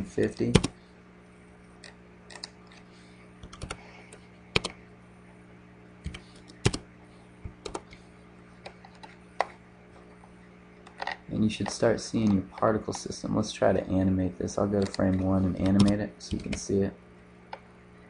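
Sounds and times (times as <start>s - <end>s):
faint steady hum: 0.0s - 18.0s
keyboard and mouse clicks: 1.8s - 2.8s, 3.4s - 3.8s, 4.5s - 4.8s, 6.0s - 6.8s, 7.6s - 8.0s, 14.8s - 16.6s.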